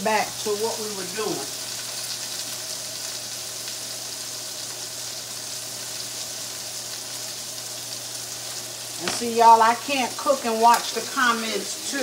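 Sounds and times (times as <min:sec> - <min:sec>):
meat sizzling in a skillet: 0:00.0 - 0:12.0.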